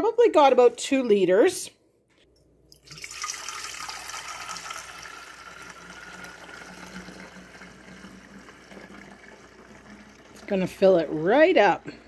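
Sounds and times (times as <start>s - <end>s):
liquid pouring through a funnel: 2.7s - 12.0s.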